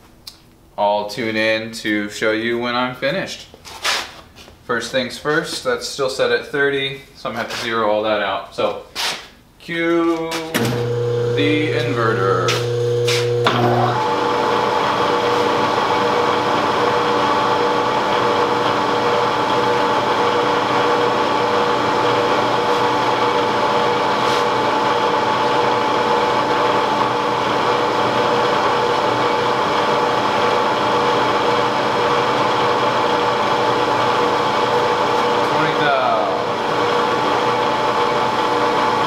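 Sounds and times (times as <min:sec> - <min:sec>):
spindle motor hum and whine: 0:10.4 - 0:39.0.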